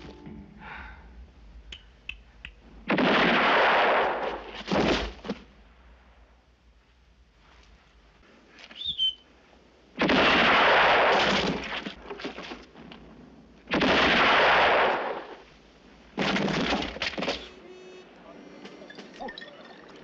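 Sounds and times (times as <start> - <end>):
gunshots with echoing tail: 2.8 - 5.1, 10.0 - 11.8, 13.7 - 15.4.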